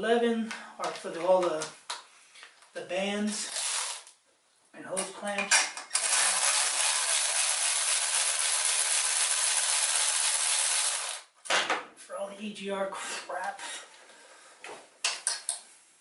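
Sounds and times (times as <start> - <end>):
cordless power tool running: 6.0 - 11.2.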